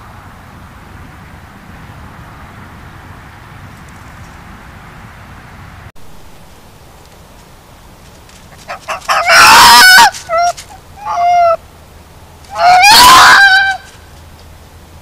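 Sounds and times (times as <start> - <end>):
fox screaming: 8.7 - 11.6, 12.5 - 14.0.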